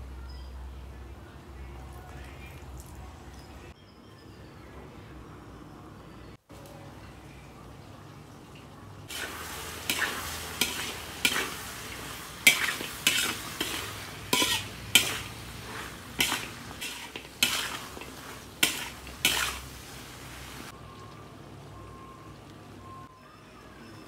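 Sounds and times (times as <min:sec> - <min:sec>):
frying sizzle: 0:07.1 - 0:22.7
metal spatula scraping a wok: 0:09.1 - 0:20.6.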